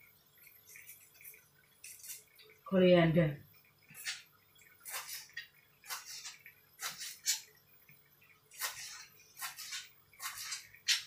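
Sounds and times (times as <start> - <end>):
knife cutting on cutting board: 4.8 - 7.4, 8.6 - 11.0.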